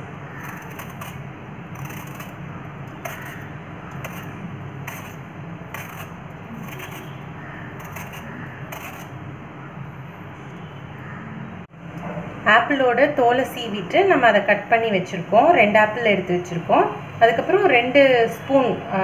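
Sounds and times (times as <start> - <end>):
peeler scraping apple skin: 0.0 - 9.2.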